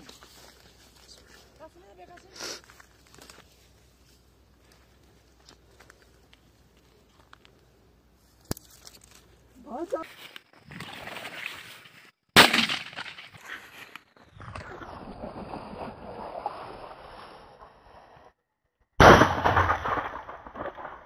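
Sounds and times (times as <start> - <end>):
shotgun shots: 12.4 - 13.2, 19.0 - 20.9.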